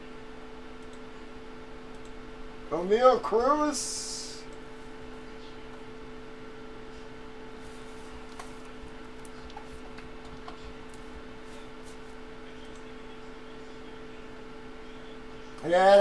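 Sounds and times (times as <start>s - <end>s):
electrical hum: 0.0s - 16.0s
faint clicks and taps: 8.3s - 11.2s.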